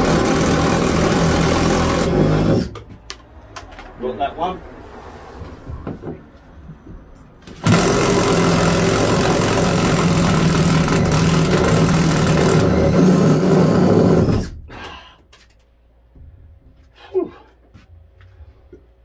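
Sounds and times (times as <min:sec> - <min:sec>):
impact driver hammering: 0:07.5 - 0:14.5.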